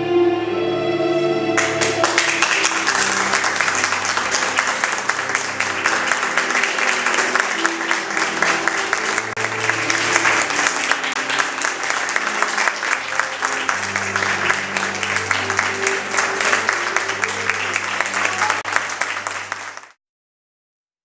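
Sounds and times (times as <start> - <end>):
music playing: 0.0 - 20.0
audience applauding: 1.6 - 20.0.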